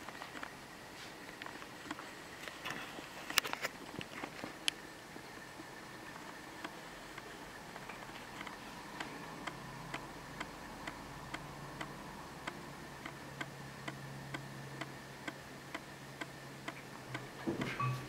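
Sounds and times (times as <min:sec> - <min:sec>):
faint low hum: 0:00.0 - 0:18.0
steady ticking: 0:06.2 - 0:18.0.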